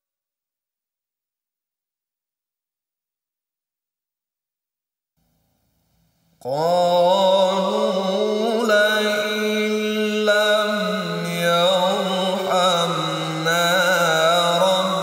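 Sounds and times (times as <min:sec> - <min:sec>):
man chanting melodic recitation: 0:06.4 - 0:15.0.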